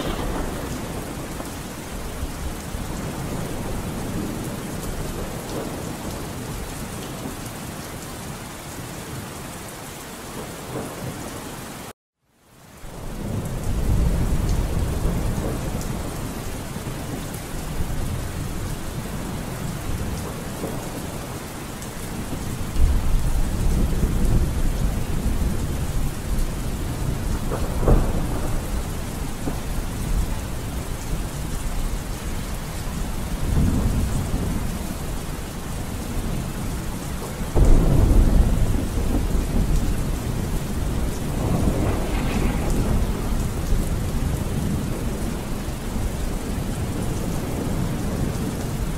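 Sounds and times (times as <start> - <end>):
thunder rolling: 0.0 - 6.4, 22.1 - 31.9, 37.1 - 48.9
steady rain: 0.0 - 48.9.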